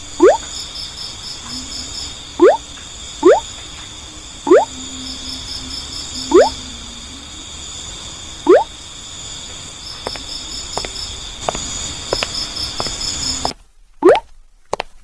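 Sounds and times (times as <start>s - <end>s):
crickets chirping: 0.0s - 14.2s
rising cartoon sound effects: 2.4s - 2.6s, 3.2s - 3.4s, 4.5s - 4.7s, 6.2s - 6.6s, 8.5s - 8.7s.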